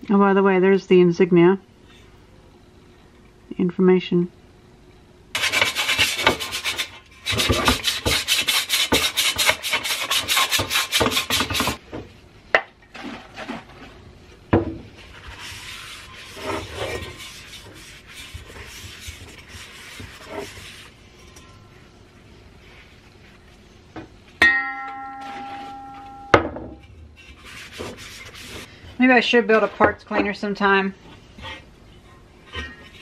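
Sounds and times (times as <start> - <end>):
scrubbing steel helmet: 15.0 - 21.0.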